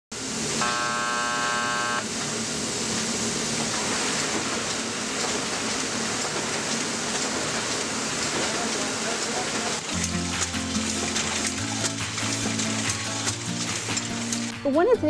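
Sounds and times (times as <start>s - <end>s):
printing press running: 0.1s - 14.6s
warning buzzer: 0.6s - 2.1s.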